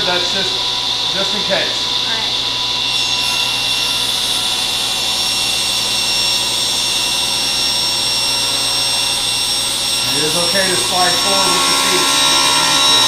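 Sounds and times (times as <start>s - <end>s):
table saw cutting board: 0.0s - 13.0s.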